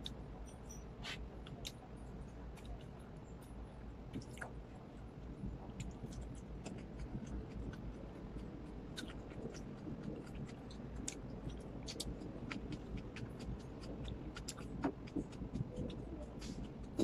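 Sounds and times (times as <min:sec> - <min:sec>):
person chewing: 0:05.7 - 0:17.0.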